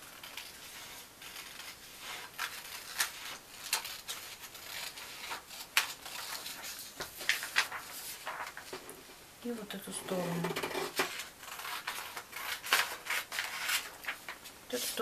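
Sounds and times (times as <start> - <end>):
scissors snipping paper: 0.2 - 7.8, 11.0 - 13.9
paper rustling: 0.2 - 8.9, 10.1 - 15.0.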